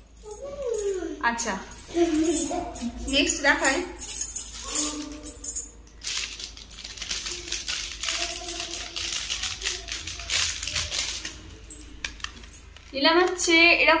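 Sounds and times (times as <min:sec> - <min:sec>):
plastic packet crinkling: 0:04.1 - 0:13.4.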